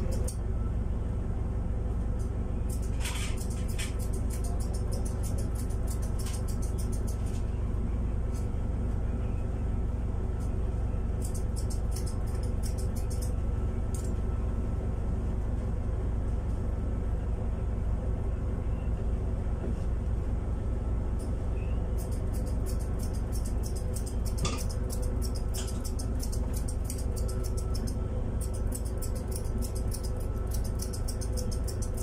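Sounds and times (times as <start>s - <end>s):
steady low hum: 0.0s - 32.0s
scissors snipping fur: 2.7s - 7.4s, 11.2s - 14.1s, 22.0s - 32.0s.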